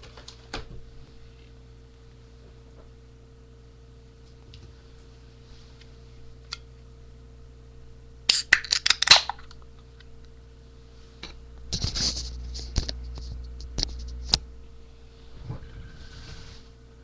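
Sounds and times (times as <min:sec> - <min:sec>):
rustling and scraping on microphone: 0:11.0 - 0:14.4, 0:15.1 - 0:16.8.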